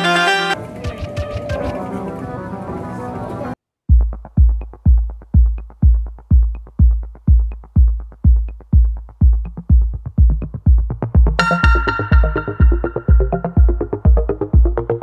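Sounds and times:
four-on-the-floor kick drum: 0:03.9 - 0:15.0
electronic dance music: 0:11.2 - 0:15.0.

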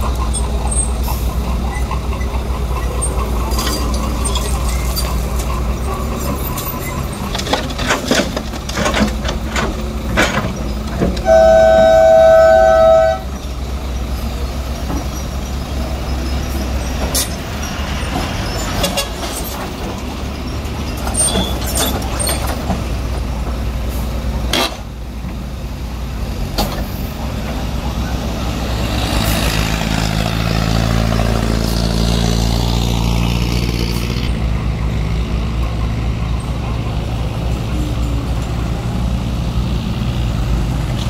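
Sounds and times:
diesel engines running: 0:00.0 - 0:41.0
soil clanking into truck bed: 0:06.2 - 0:11.3
two-tone vehicle horn: 0:11.2 - 0:13.4.

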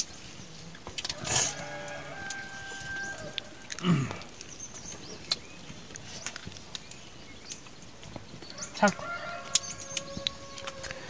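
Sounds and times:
wavering animal call: 0:01.2 - 0:03.8.

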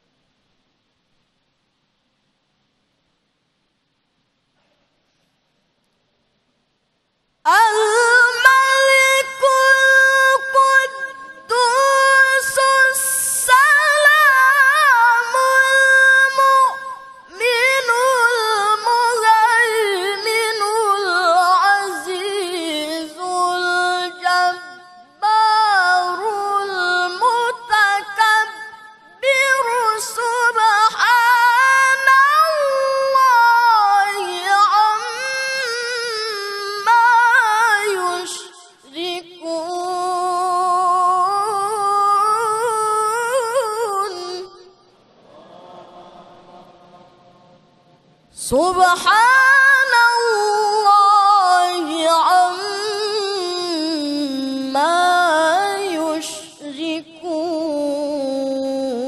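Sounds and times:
man reciting melodically: 0:07.5 - 0:44.6, 0:48.4 - 0:59.0.

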